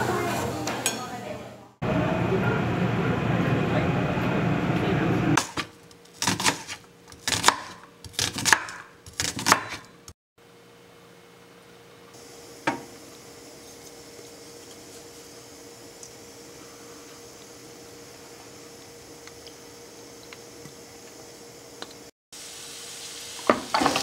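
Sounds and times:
subway train running: 1.8 - 5.4
knife slicing onions: 5.4 - 10.0.

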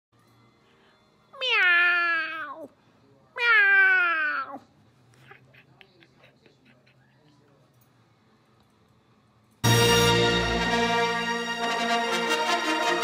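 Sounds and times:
cat meowing: 1.4 - 2.7, 3.4 - 4.7.

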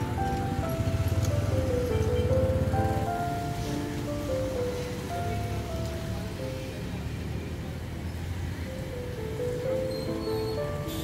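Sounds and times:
slow melody over low bass: 0.0 - 7.1.

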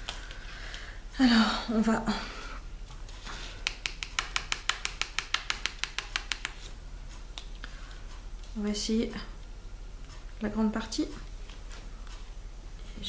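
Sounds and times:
drill pen clicking on plastic: 3.6 - 6.6.

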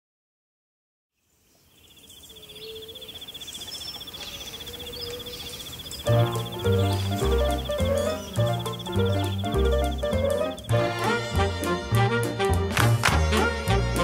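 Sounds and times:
bird chirps: 1.2 - 11.2
pulsing insect trill: 2.1 - 11.2
music with deep bass: 6.1 - 14.0.

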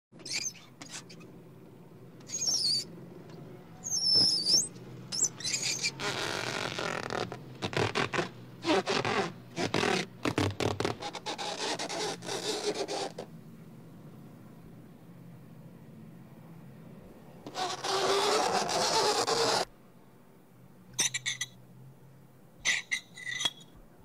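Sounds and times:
hand squeaking on balloon: 0.1 - 1.2, 2.2 - 2.9, 3.8 - 13.3, 17.4 - 19.7, 21.0 - 21.6, 22.6 - 23.7
chalk squeaking on blackboard: 0.2 - 1.2, 2.3 - 2.9, 3.9 - 13.3, 17.5 - 19.7, 21.0 - 21.5, 22.6 - 23.6.

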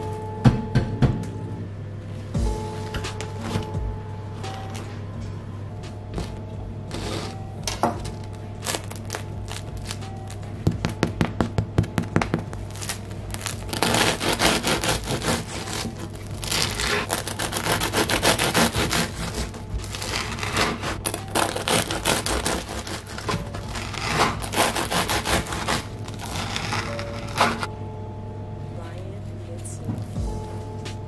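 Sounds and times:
bread knife sawing crusty loaf: 12.8 - 27.7.

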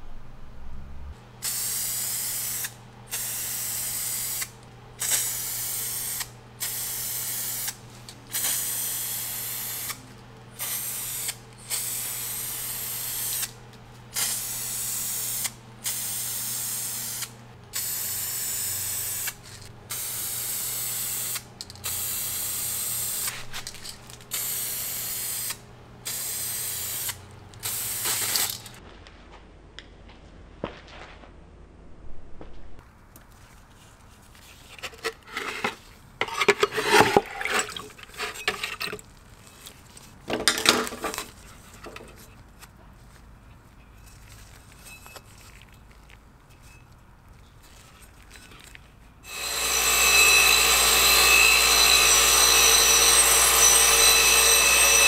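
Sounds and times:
spray can hissing bursts: 1.4 - 10.0, 10.6 - 13.5, 14.1 - 23.6, 24.3 - 28.8.

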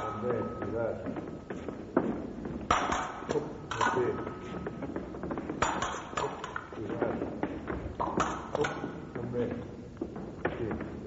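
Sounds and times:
fencing blades clinking: 0.0 - 1.0, 2.6 - 7.0, 8.0 - 9.2.

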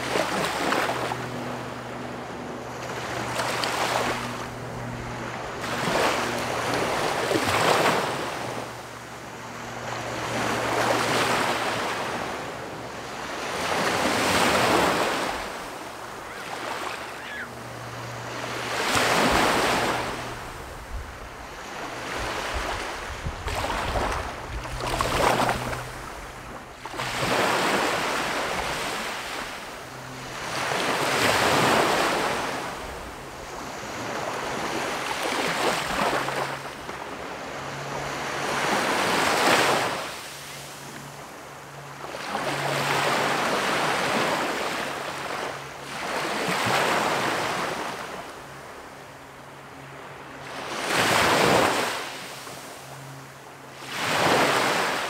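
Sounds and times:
small waves breaking on sand: 0.0 - 55.0
wind rumble on microphone: 19.2 - 27.4.

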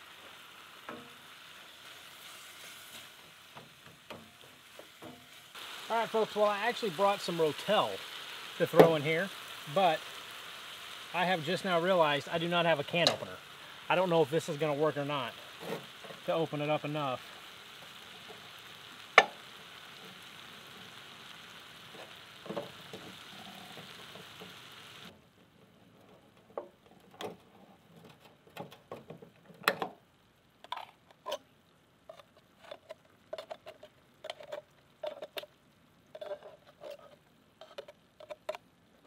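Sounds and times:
meat sizzling in a skillet: 0.0 - 25.1.

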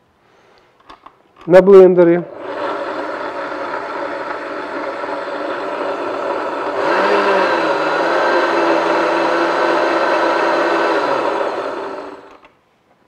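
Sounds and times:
blender running: 2.3 - 12.5.

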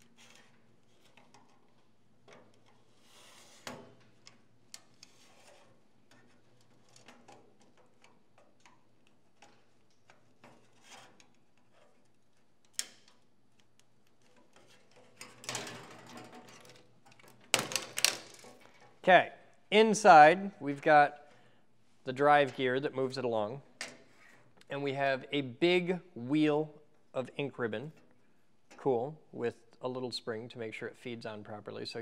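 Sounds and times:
plastic scraping and clattering: 14.1 - 19.0.

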